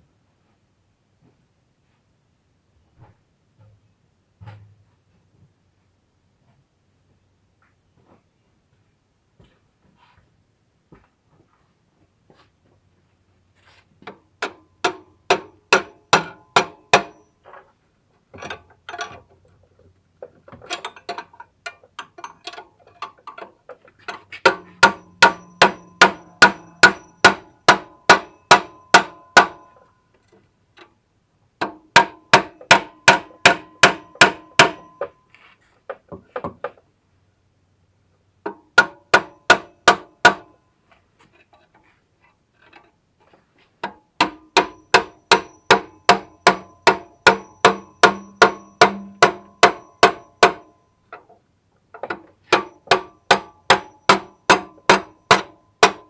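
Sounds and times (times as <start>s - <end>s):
hammer striking metal: 14.4s - 17.3s, 24.4s - 29.8s, 32.0s - 35.2s, 44.2s - 50.8s, 52.5s - 56.0s.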